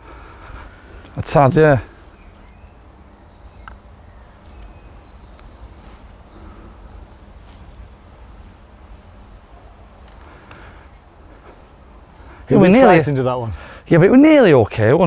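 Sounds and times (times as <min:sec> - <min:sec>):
low background rumble: 0:00.0 - 0:13.9
faint bird chirps: 0:00.8 - 0:08.1, 0:08.7 - 0:13.1.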